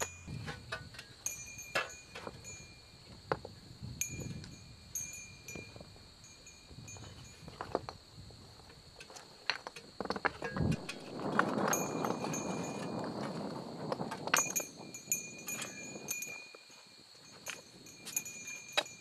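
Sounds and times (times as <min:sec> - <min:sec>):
shovel clinks: 0:00.0 - 0:02.9, 0:14.3 - 0:19.0.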